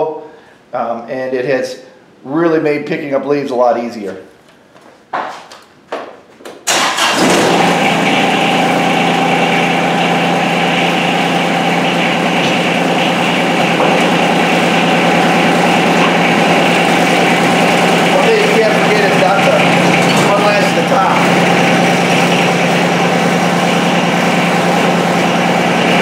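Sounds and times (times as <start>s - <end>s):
tractor diesel engine running: 6.7s - 26.0s.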